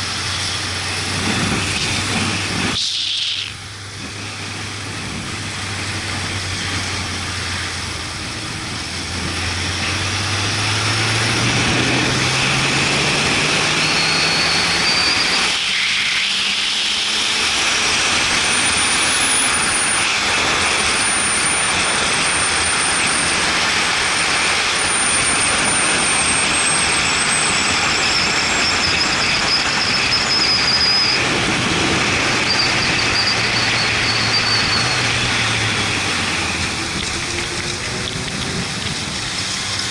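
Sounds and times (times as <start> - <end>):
motorcycle engine running: 0.0 - 15.4, 16.6 - 39.9
wind rush on microphone: 0.0 - 15.6, 16.4 - 39.9.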